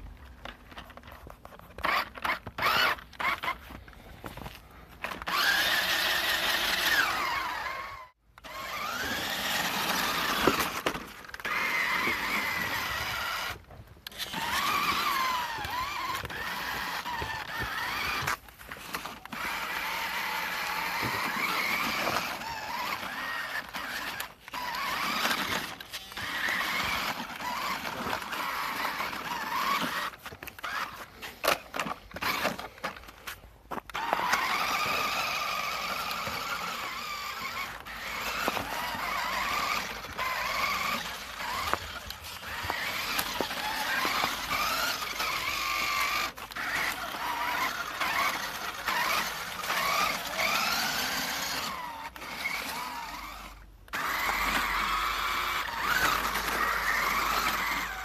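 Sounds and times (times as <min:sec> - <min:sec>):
toy truck motor whining: 0:00.0 - 0:58.0.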